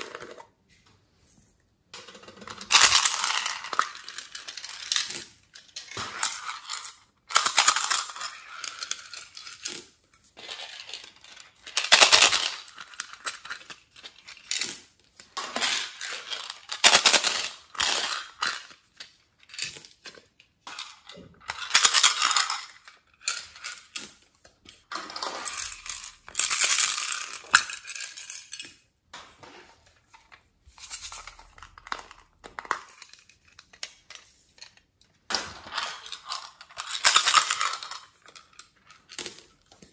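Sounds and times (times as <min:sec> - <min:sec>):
beads rattling into glass dish: 0:02.1 - 0:05.2, 0:24.9 - 0:28.8, 0:35.6 - 0:39.3.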